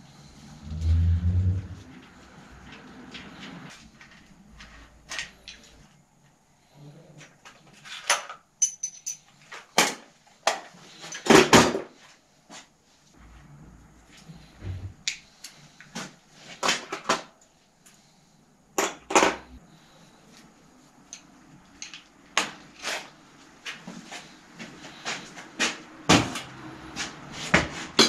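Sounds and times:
metallic clanks of hand tools: 0:08.2 - 0:09.2.

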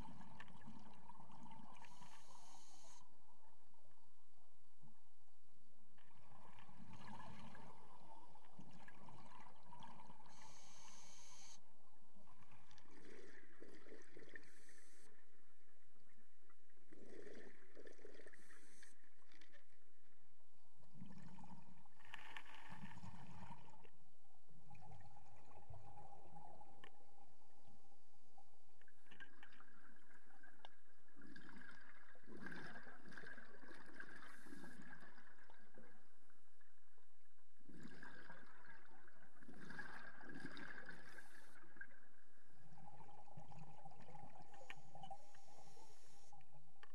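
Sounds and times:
underwater gurgling: 0:00.0 - 0:03.6, 0:05.9 - 0:20.2, 0:20.8 - 0:46.9.

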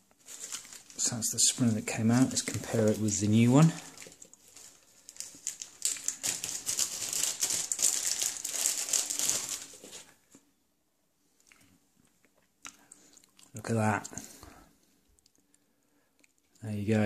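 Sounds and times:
packaging rustling and crumpling: 0:00.0 - 0:10.4.

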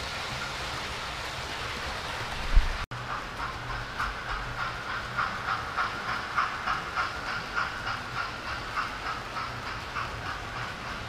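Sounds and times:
model train wheels clicking: 0:02.3 - 0:11.0.

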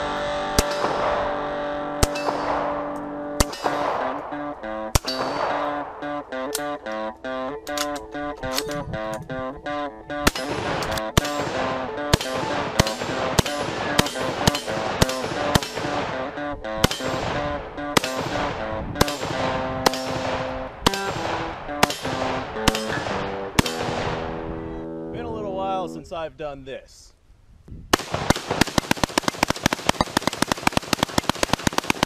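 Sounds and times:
guitar background music: 0:00.0 - 0:26.2
rifle shots: 0:00.5 - 0:06.8, 0:10.1 - 0:24.5, 0:27.9 - 0:32.0.

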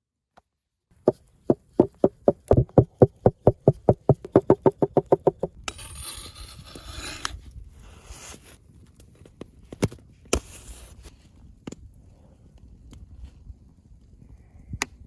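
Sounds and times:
stick knocking on wooden board: 0:01.1 - 0:05.5.

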